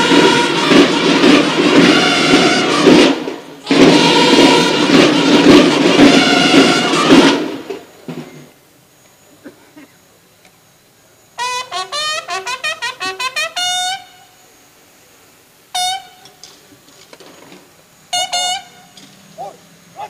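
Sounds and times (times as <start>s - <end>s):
military bugles playing: 0.0s - 8.5s, 11.4s - 14.5s, 15.7s - 16.6s, 18.1s - 20.0s.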